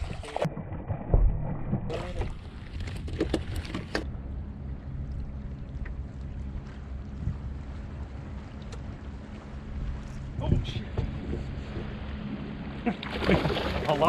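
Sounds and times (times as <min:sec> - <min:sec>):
water moving past hull: 0:00.0 - 0:14.0
wind on microphone: 0:06.9 - 0:08.4, 0:09.7 - 0:12.2.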